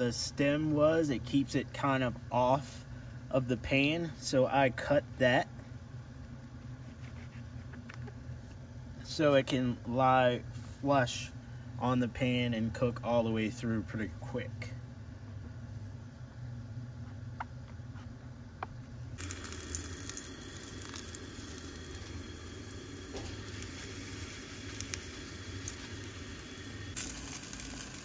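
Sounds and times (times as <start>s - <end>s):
low hum: 13.6s - 28.0s
mushroom sizzling in a skillet: 19.2s - 28.0s.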